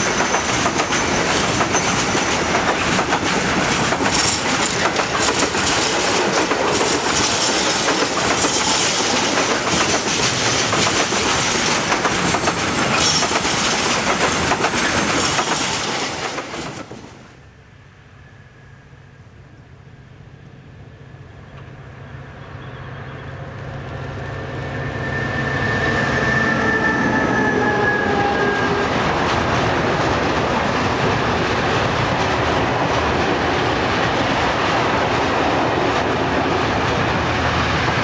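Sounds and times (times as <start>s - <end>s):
train wheels clattering over rails: 0.0s - 17.3s, 28.7s - 38.0s.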